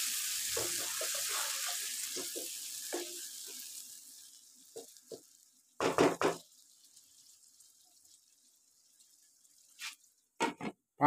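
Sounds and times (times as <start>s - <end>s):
faint sizzle in a wok: 0.0s - 10.4s
knocks on cookware: 5.8s - 6.4s, 10.4s - 10.8s.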